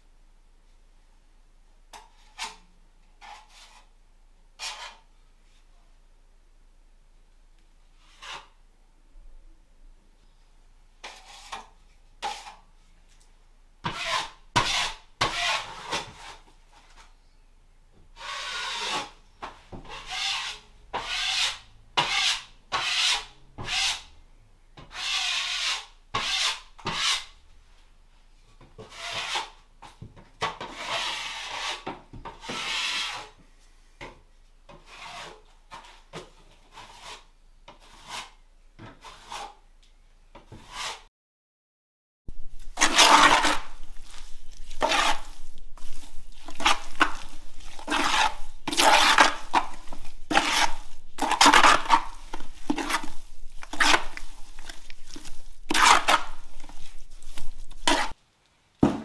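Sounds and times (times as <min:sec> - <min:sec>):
sanding rasping strokes: 0:42.8 - 0:58.2.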